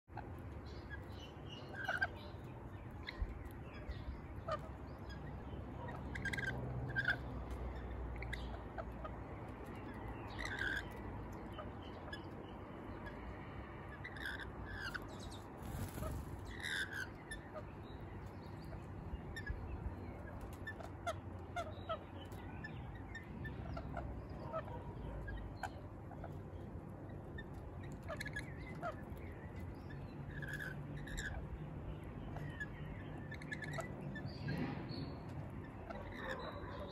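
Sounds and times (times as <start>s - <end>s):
parrots screeching: 5.8s - 8.9s, 10.3s - 11.0s, 14.0s - 15.0s, 15.6s - 17.6s, 30.3s - 31.4s, 32.4s - 34.3s, 35.8s - 36.9s.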